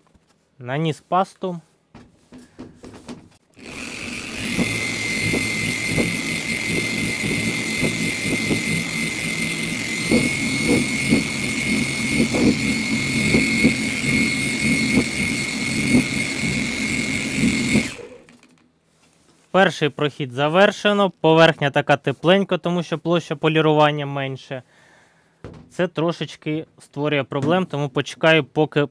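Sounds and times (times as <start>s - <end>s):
car polishing machine whining: 3.6s - 18.6s.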